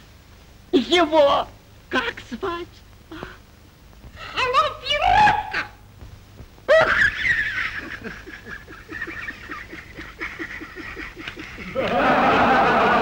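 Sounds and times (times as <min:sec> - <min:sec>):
man chuckling: 0:06.7 - 0:13.0.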